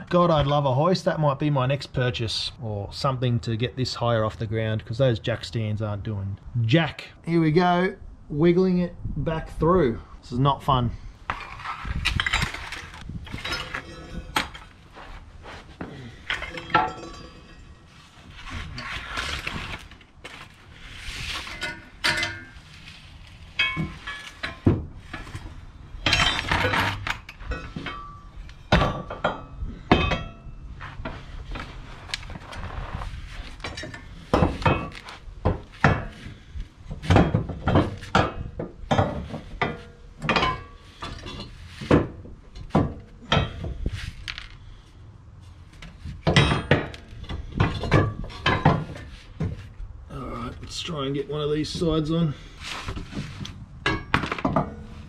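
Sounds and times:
metal bar clanking against car: 0:11.3 - 0:14.8, 0:16.2 - 0:17.8, 0:21.5 - 0:22.6, 0:23.6 - 0:31.2, 0:33.6 - 0:36.3, 0:36.9 - 0:44.5, 0:46.2 - 0:49.6, 0:53.8 - 0:55.0.

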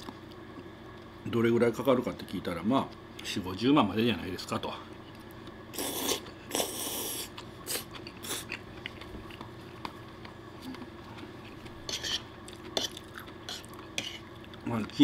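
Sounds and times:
man chewing: 0:05.7 - 0:14.6.

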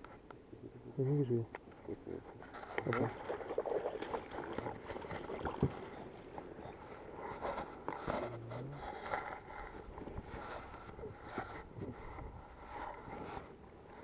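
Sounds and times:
oars splashing: 0:01.9 - 0:14.0
oars knocking in oarlocks: 0:02.4 - 0:06.6.

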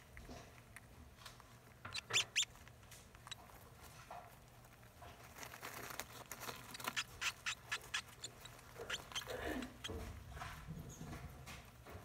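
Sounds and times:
rats rustling in paper bedding: 0:00.6 - 0:10.4
short sharp high squeaks: 0:01.9 - 0:02.5, 0:06.6 - 0:09.9.

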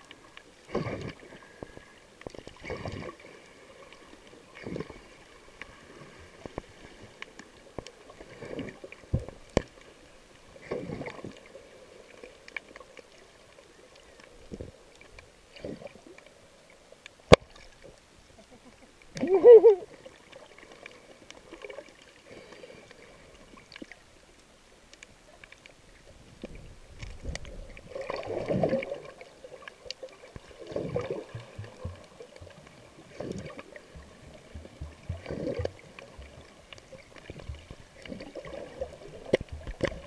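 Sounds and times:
muffled underwater water surges: 0:00.0 - 0:40.0
faint clicks: 0:06.4 - 0:08.0, 0:12.1 - 0:19.3, 0:20.2 - 0:27.8, 0:29.6 - 0:30.5, 0:39.2 - 0:40.0.

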